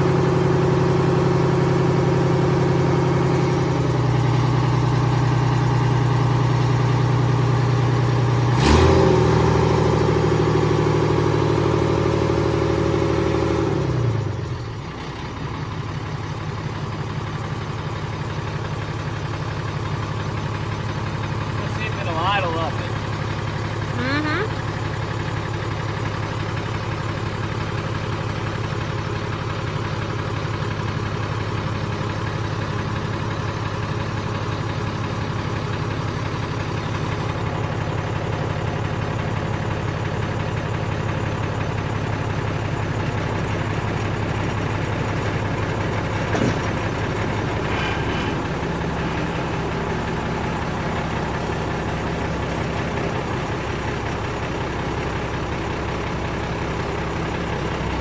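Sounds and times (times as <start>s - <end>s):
diesel engine running: 0.0s - 58.0s
sharp clunk: 46.3s - 46.9s.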